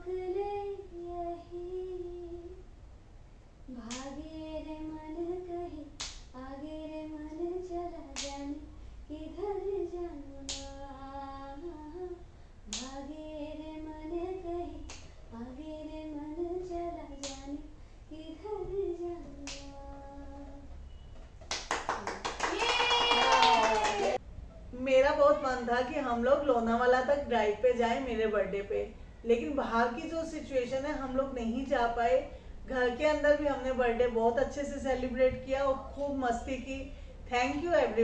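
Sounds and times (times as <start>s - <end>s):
sharp hand clap: 21.4s - 24.2s.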